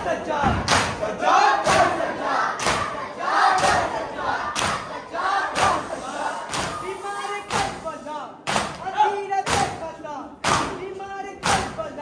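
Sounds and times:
men chanting: 0.0 - 8.0
hands slapping chests in unison: 0.6 - 1.0, 1.6 - 4.9, 5.5 - 5.8, 6.5 - 6.8, 7.5 - 9.8, 10.4 - 10.8, 11.4 - 11.8.

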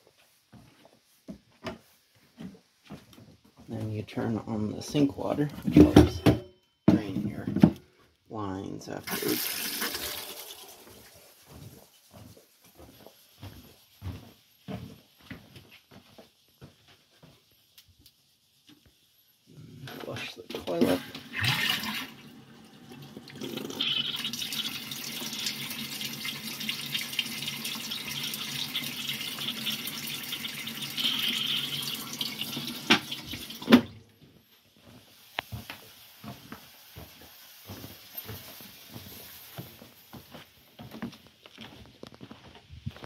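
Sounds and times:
footsteps on floor: 0.0 - 3.9, 10.8 - 17.5, 34.2 - 43.0
water running in toilet plumbing: 8.8 - 11.7, 19.7 - 34.0.

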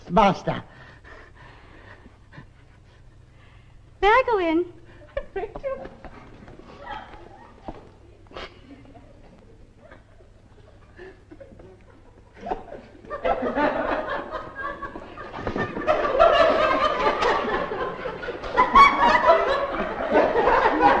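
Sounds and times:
laughter: 4.9 - 21.0.

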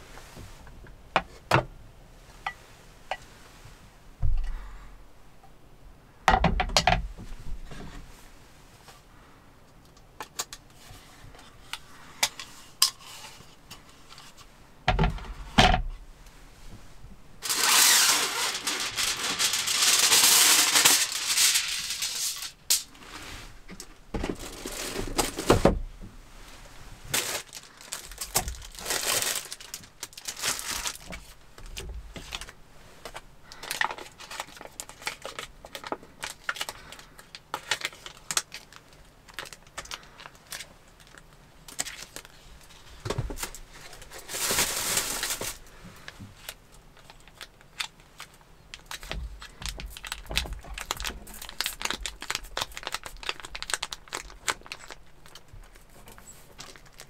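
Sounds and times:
packaging tearing: 17.4 - 22.9, 27.1 - 31.3, 33.6 - 42.4, 47.0 - 55.8, 56.6 - 57.0
plastic wrappers crinkling: 17.4 - 22.9, 24.3 - 25.5, 27.1 - 57.0.

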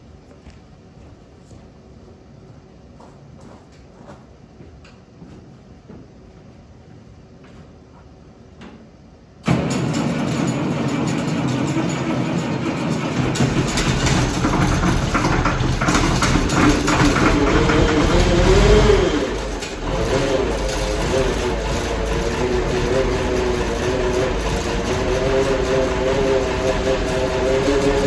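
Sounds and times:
diesel engine cranking and running: 9.4 - 28.0.

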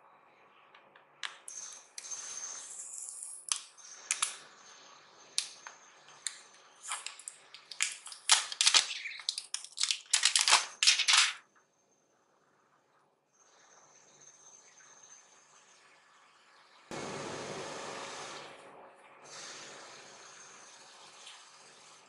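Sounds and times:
plastic film crackling: 6.8 - 11.4.

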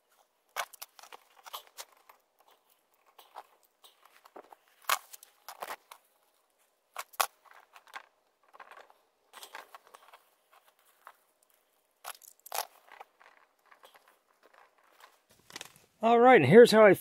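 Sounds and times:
foil tape crinkling and tearing: 0.5 - 6.0, 7.0 - 10.2, 12.0 - 15.9.

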